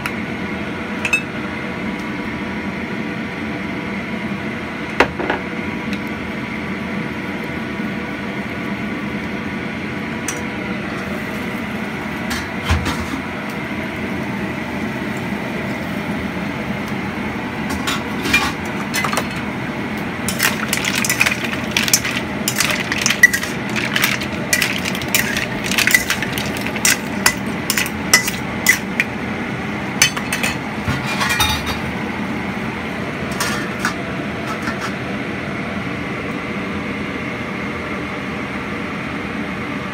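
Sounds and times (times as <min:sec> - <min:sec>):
steady background hum: 0:00.0 - 0:39.9
mussel shells clinking in wok: 0:20.3 - 0:29.1, 0:30.0 - 0:30.6.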